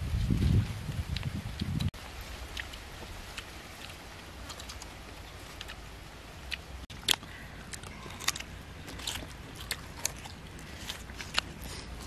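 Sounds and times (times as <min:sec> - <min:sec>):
crisp crunching of fruit: 0:02.5 - 0:05.8, 0:06.4 - 0:12.0.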